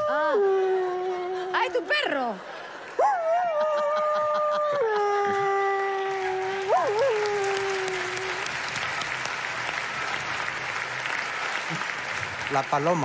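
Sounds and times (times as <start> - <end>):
audience applause: 2.4 - 13.0
man imitating dog howl: 3.4 - 8.4.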